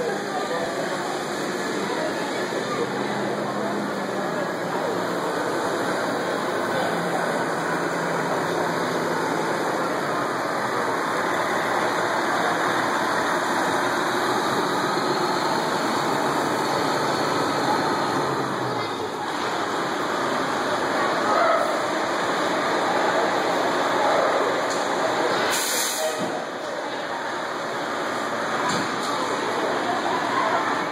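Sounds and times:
fire engine diesel engine: 0.0s - 30.9s.

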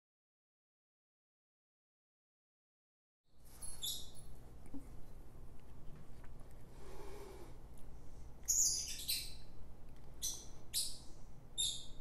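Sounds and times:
small bird chirping: 3.6s - 4.3s, 8.4s - 9.6s, 10.2s - 12.0s.

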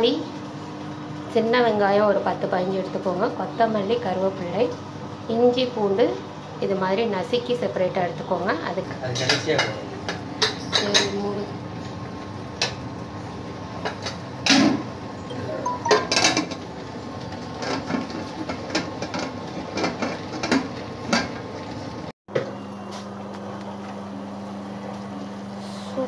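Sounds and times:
metal kitchenware clattering: 15.8s - 16.6s.

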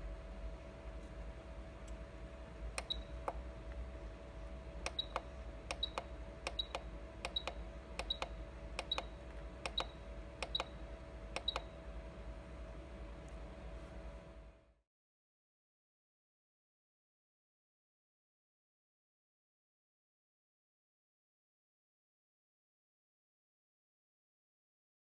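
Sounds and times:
steady hum: 0.0s - 14.8s
button click: 4.8s - 10.7s.

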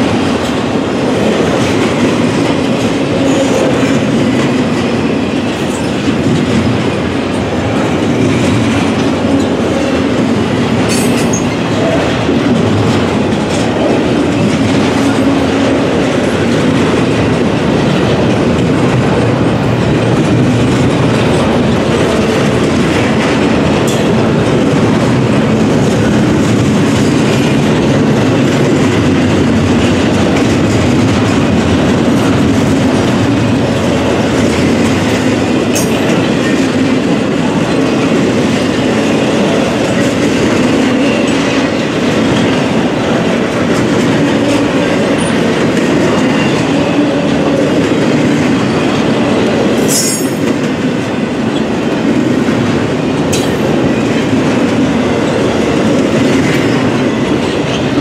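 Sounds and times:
train wheels clacking over rail joints: 0.0s - 58.0s.

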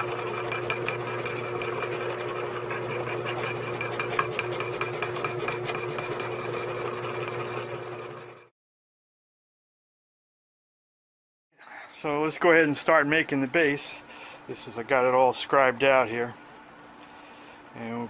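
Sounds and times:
die filer rasping: 0.0s - 8.5s.

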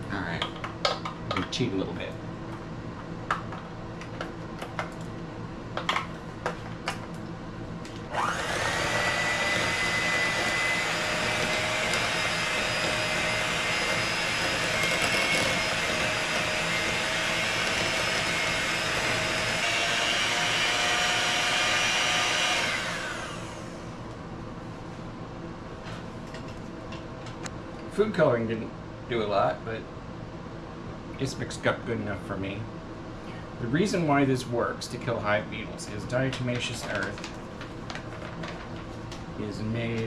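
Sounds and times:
electric hand mixer whining: 8.1s - 24.0s.

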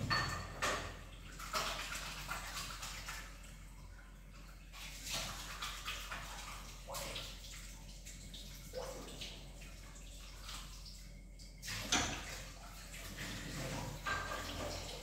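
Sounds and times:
dishes clattering: 0.0s - 1.0s, 13.4s - 15.0s
dishes knocking: 0.0s - 1.0s
water splashing and trickling: 0.0s - 15.0s.

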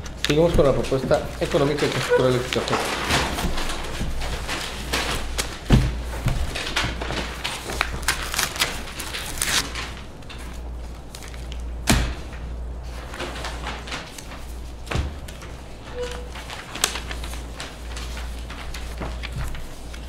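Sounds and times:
folders handled on table: 0.0s - 8.2s
paper rustling: 0.0s - 20.0s.

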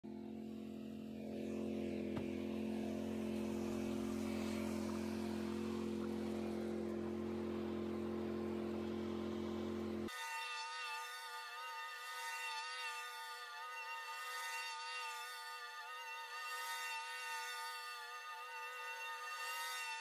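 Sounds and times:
riding mower engine running: 0.0s - 10.1s.

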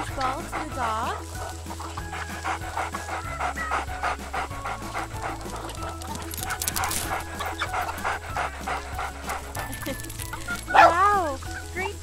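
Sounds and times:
cartoon dog panting: 0.0s - 10.9s
background music with bass line: 0.0s - 12.0s.

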